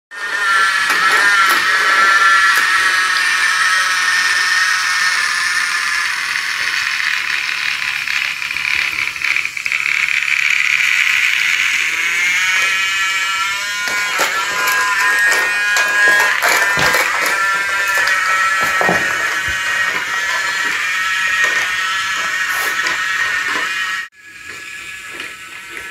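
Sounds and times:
toy train motor whine: 0:00.1 - 0:25.9
wheels clicking over track joints: 0:06.2 - 0:24.0.

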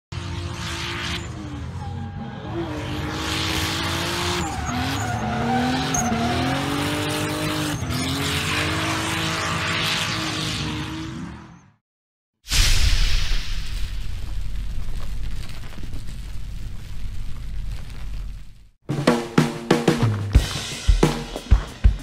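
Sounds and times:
car engine revving: 0:00.1 - 0:11.6
tyres squealing: 0:04.0 - 0:08.2.

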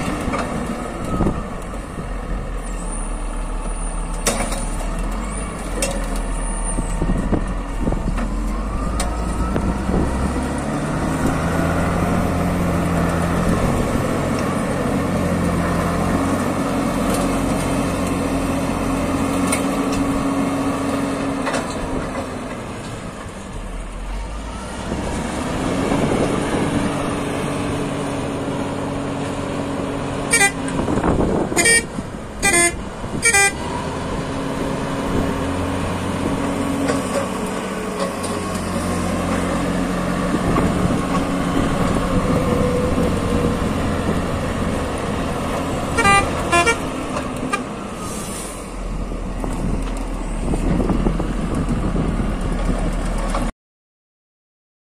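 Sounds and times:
diesel engine running: 0:00.0 - 0:53.5
vehicle horn toots: 0:30.3 - 0:30.6, 0:31.5 - 0:33.6, 0:45.9 - 0:46.9.

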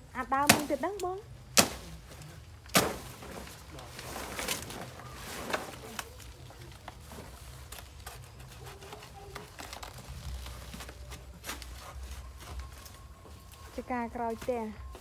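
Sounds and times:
leaves rustling: 0:00.0 - 0:15.0
knife chopping plant trunk: 0:00.4 - 0:00.8, 0:01.5 - 0:01.9, 0:02.7 - 0:03.4.

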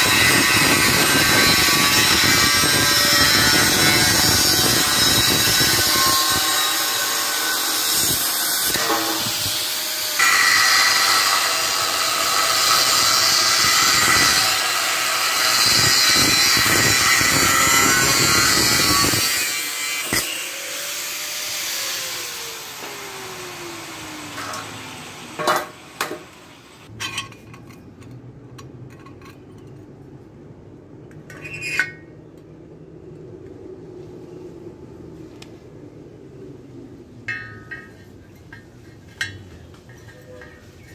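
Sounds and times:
angle grinder cutting steel: 0:00.0 - 0:26.5.

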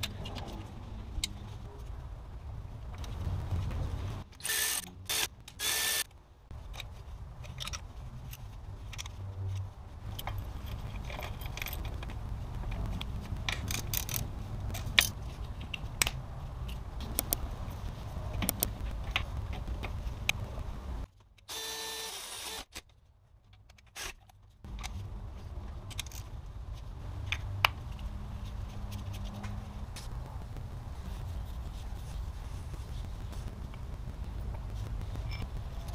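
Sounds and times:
steady low hum: 0:26.4 - 0:35.9.

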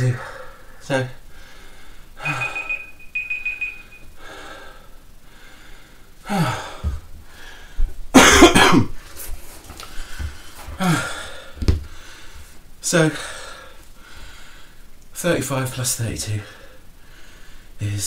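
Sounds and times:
man coughing: 0:08.1 - 0:08.9.

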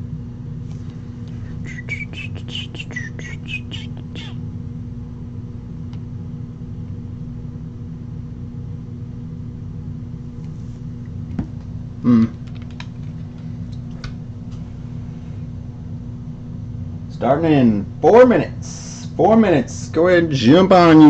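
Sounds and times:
low room hum: 0:00.0 - 0:21.0.

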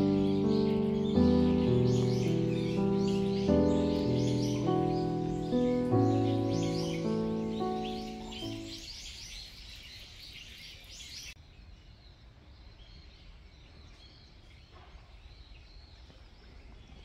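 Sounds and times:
distant bird notes: 0:00.0 - 0:10.2
small birds chirping: 0:00.0 - 0:17.0.

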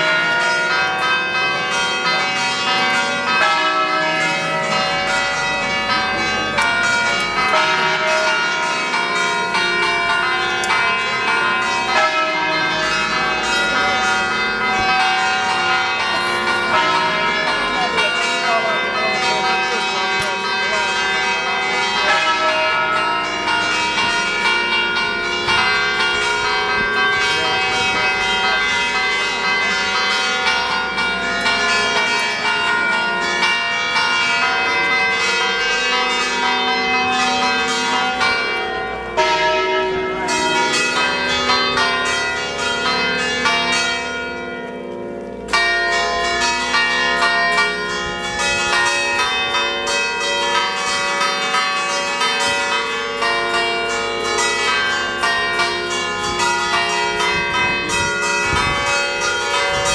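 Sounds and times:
church bells ringing: 0:00.0 - 0:59.9.

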